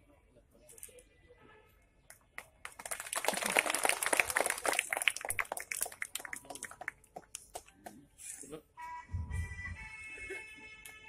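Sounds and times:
audience clapping: 0:02.4 - 0:07.7.

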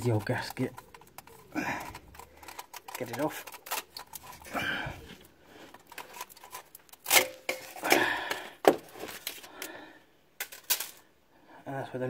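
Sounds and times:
metal clicks and scrapes: 0:00.0 - 0:08.0.

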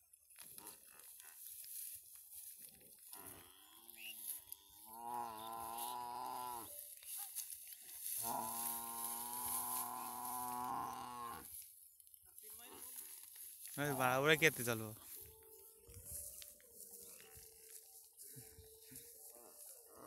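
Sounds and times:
water buffalo mooing: 0:03.3 - 0:06.7, 0:08.2 - 0:11.5.

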